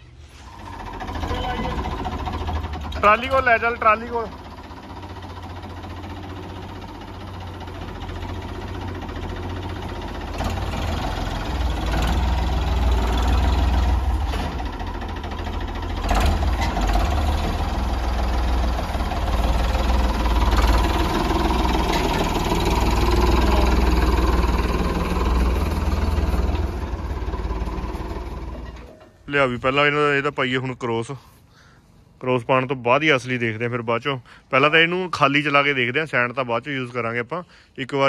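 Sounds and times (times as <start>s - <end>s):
tractor engine running: 0.4s - 30.4s.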